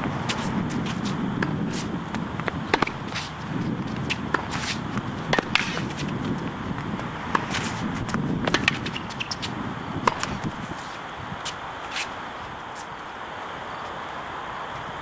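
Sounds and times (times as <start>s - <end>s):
wind on microphone: 0.0s - 11.8s
tennis ball bounces: 0.1s - 12.0s
tennis racket strikes: 0.3s - 6.2s, 7.3s - 11.0s.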